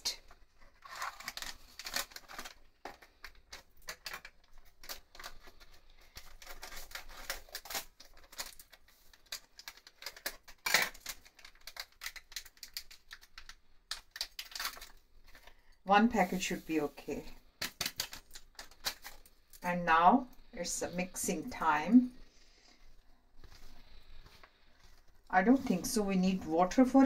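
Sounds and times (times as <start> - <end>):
foil sachet crinkling: 0.1 - 19.6
scissors cutting foil: 6.2 - 15.0.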